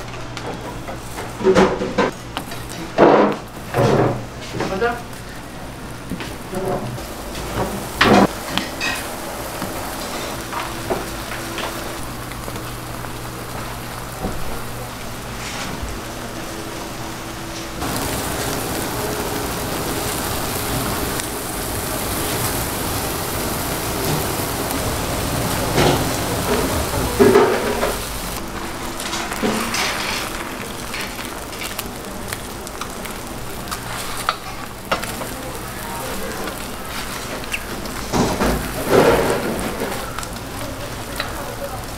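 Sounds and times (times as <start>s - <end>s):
ham sizzling on a griddle: 1.0s - 41.9s.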